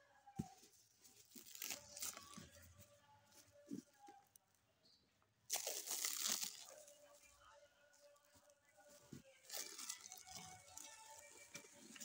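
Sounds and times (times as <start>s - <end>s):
plastic wrapping crinkling: 1.1s - 2.6s, 5.5s - 7.2s, 8.9s - 12.0s.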